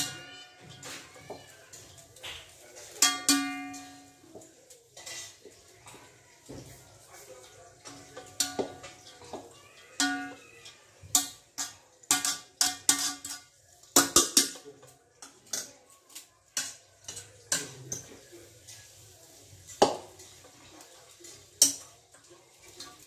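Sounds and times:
metal spoon clinking on pot: 0:00.0 - 0:06.1, 0:07.4 - 0:18.9, 0:19.6 - 0:23.0.

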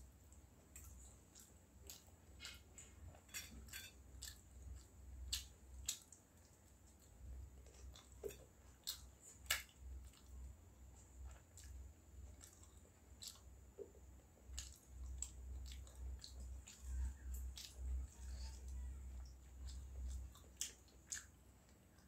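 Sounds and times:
crisp crunchy chewing: 0:11.0 - 0:22.0.

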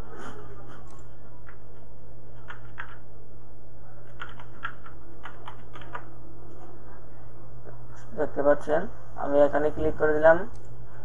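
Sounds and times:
low hum: 0:00.0 - 0:11.0
keyboard typing: 0:02.3 - 0:03.0, 0:04.0 - 0:06.1.

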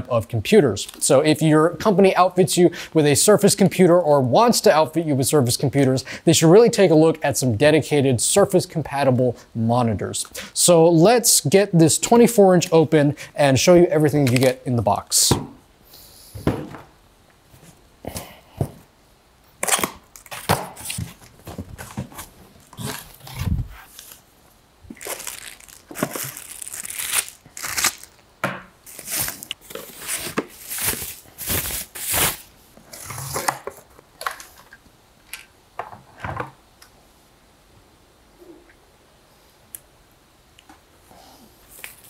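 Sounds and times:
plastic and cardboard rustling: 0:19.8 - 0:24.3, 0:24.9 - 0:28.2, 0:28.8 - 0:34.8.

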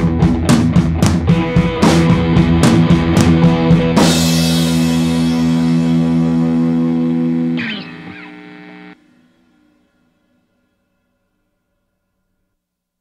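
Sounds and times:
rock music with distorted guitar: 0:00.0 - 0:09.0
guitar chord ringing out: 0:04.2 - 0:10.0.

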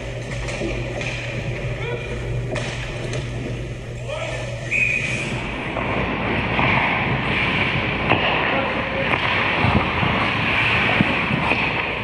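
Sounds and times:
skates scraping on ice: 0:05.0 - 0:12.0.

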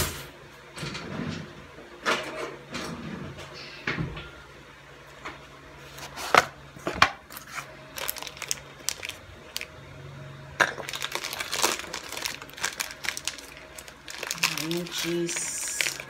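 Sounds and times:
wrapper crinkling and rustling: 0:07.3 - 0:09.7, 0:10.6 - 0:16.0.

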